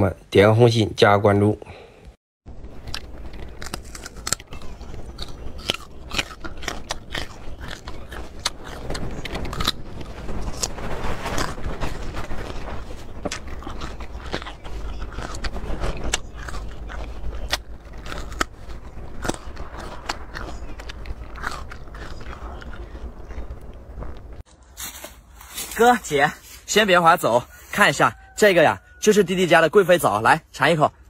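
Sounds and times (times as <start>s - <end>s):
crunchy biting and chewing: 2.8s - 25.0s.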